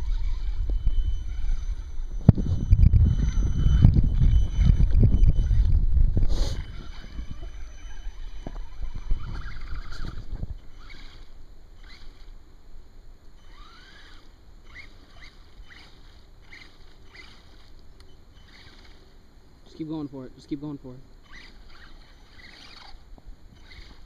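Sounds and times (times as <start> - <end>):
low rumble: 0.0 - 11.8
electric motor whining: 0.0 - 12.4, 13.3 - 19.9, 21.2 - 24.0.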